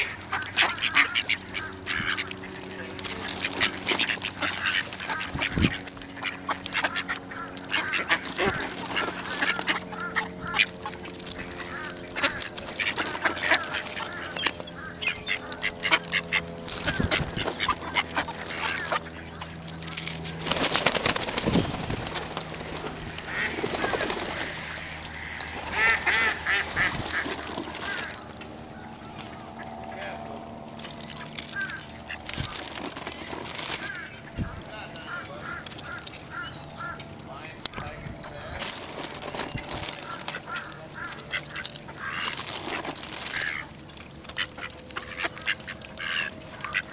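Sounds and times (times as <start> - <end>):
ducks quacking: 0.0 - 46.9
bills tapping on pavement: 25.0 - 28.6, 38.6 - 46.9.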